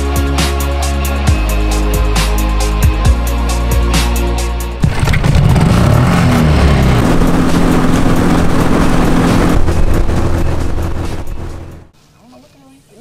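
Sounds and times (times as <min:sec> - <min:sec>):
outboard motor running: 0:04.8 - 0:11.9.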